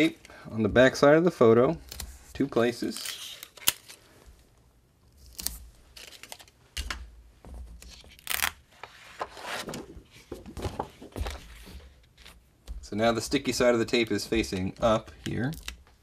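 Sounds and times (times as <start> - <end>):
tape crackling: 2.8 - 4.1, 5.1 - 7.0, 7.8 - 16.0.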